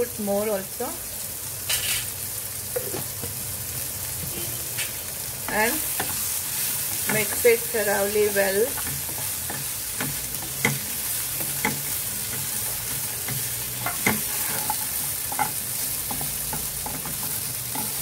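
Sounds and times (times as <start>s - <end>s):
vegetables sizzling in oil: 0.0s - 18.0s
spatula scraping and knocking pan: 5.5s - 18.0s.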